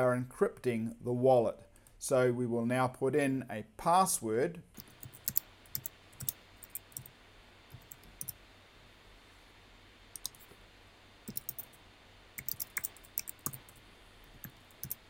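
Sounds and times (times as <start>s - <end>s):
keyboard keys clicking: 11.3s - 11.7s, 12.4s - 13.7s.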